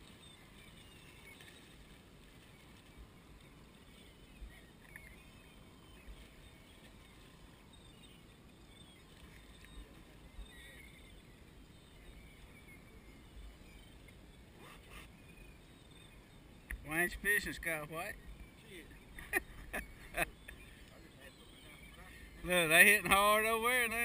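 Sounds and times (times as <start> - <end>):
faint high chirping calls: 0.0 - 24.0
faint wind and water rumble: 0.0 - 24.0.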